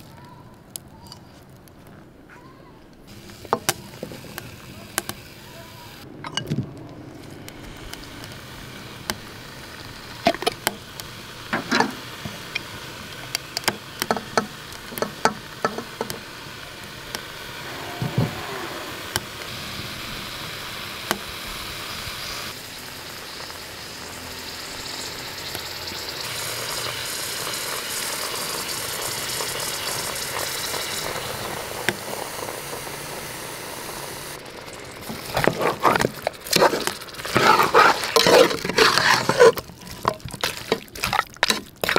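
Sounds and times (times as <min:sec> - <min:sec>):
pressure cooker hissing: 0:03.1 - 0:06.1, 0:07.3 - 0:41.9
glass jars and spoons clinking: 0:06.2 - 0:06.6.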